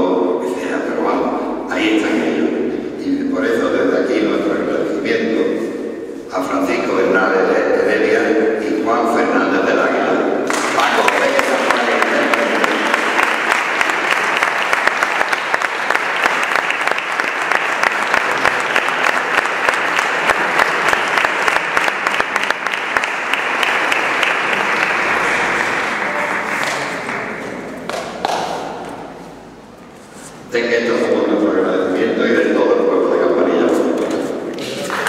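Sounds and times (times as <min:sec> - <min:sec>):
audience applauding: 0:10.5 - 0:28.4, 0:34.6 - 0:35.0.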